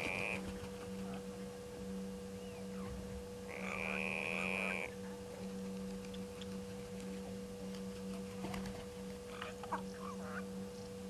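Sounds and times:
two-tone electrical hum: 0.0s - 11.0s
faint animal chirps: 3.5s - 5.0s.

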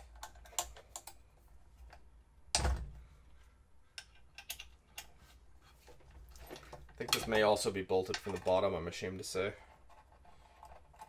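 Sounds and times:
small metal parts clicking: 4.0s - 5.1s.

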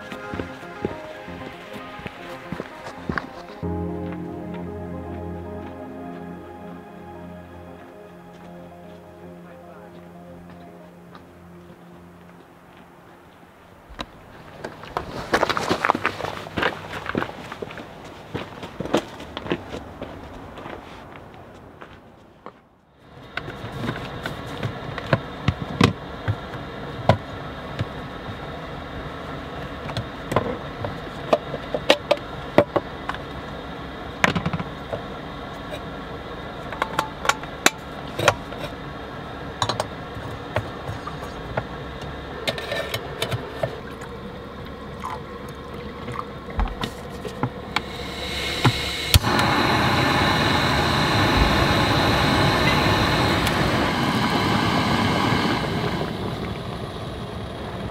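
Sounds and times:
steady rushing noise: 47.7s - 57.9s.

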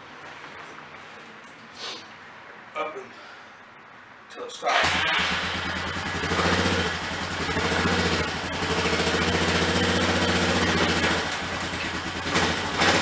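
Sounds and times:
quad engine running at low speed: 4.8s - 13.0s.

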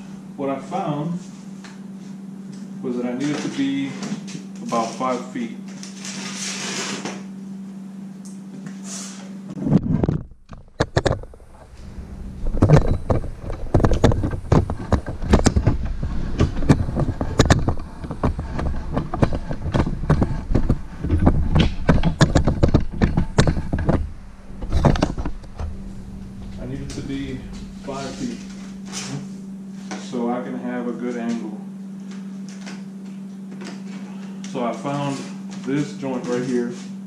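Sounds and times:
steady low hum: 0.0s - 37.0s
plastic pipes knocking and clattering: 12.6s - 24.1s.

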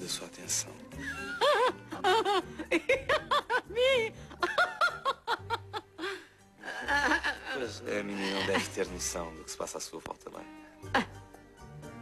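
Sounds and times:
woman giggling: 1.0s - 6.0s.

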